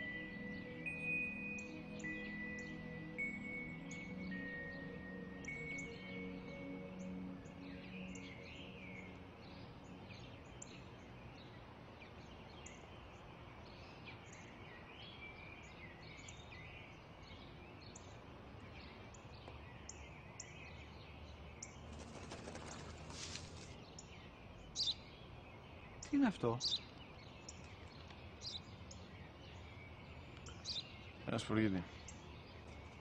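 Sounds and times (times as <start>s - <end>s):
small birds chirping: 0.0s - 33.0s
soft outdoor hiss: 0.0s - 33.0s
brief rustle: 22.2s - 23.8s.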